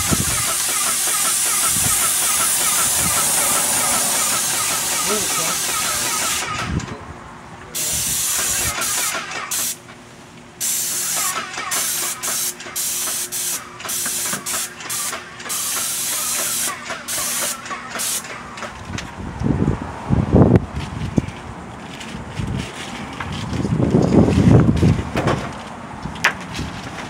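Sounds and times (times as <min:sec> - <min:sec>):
paint sprayer hissing: 0:00.0 - 0:06.7, 0:07.8 - 0:09.8, 0:10.6 - 0:18.8.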